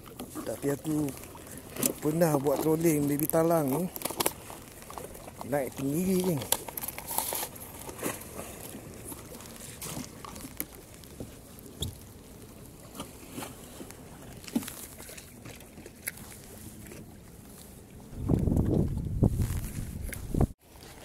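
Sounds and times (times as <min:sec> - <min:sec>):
water lapping against kayak hull: 0:00.0 - 0:21.0.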